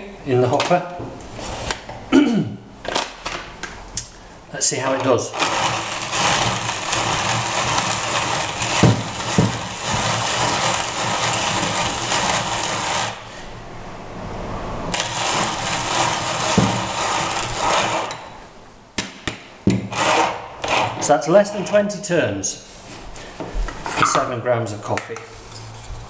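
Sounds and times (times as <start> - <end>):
hand coffee grinder crunching: 5.3 - 13.2, 15.0 - 18.2.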